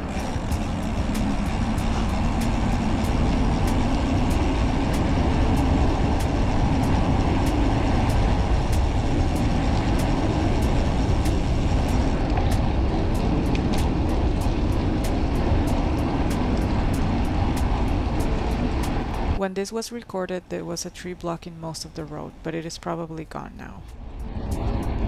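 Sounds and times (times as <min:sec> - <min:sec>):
bike tyres rolling on pavement: 0:00.0 - 0:19.4
wind on microphone: 0:00.0 - 0:19.4, 0:23.9 - 0:25.0.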